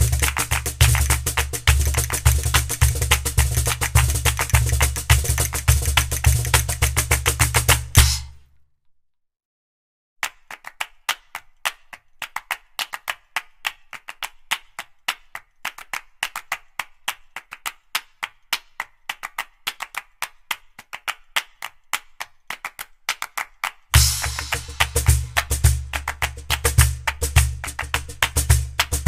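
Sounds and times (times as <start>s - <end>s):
percussive clicking music: 0.0s - 8.4s, 24.0s - 29.0s.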